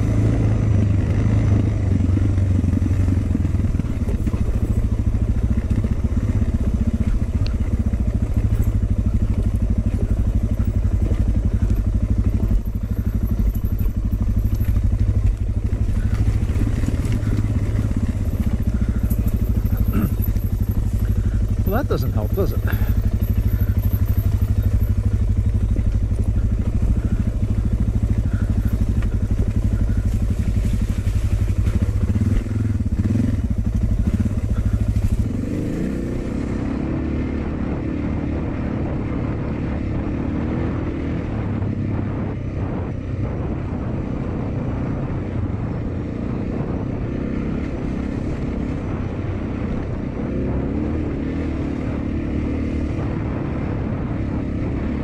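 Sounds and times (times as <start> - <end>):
motorcycle engine running: 0.0 - 55.0
wind: 0.0 - 55.0.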